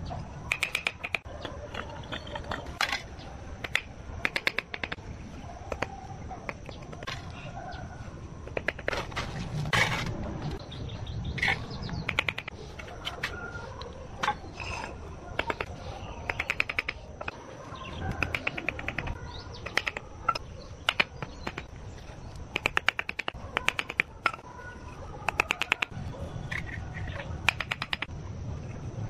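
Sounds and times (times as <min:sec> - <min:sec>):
metal tool tapping bricks: 0:00.5 - 0:03.0, 0:03.6 - 0:05.0, 0:27.4 - 0:28.1.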